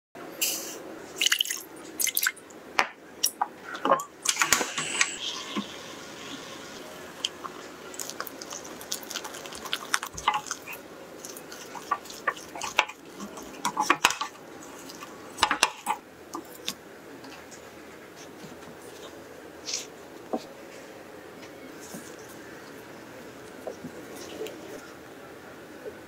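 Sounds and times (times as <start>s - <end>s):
spatula scraping dough in pot: 9.4s - 16.0s.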